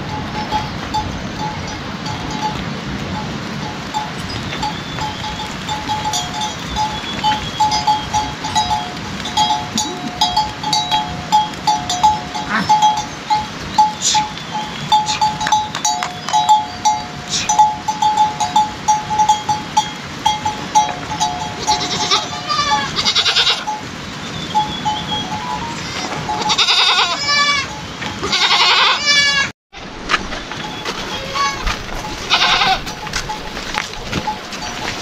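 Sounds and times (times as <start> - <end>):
livestock bells clinking: 0.0 - 29.0, 30.5 - 35.0
animal bleating: 12.4 - 12.8, 21.5 - 23.7, 25.2 - 29.5, 30.8 - 33.5.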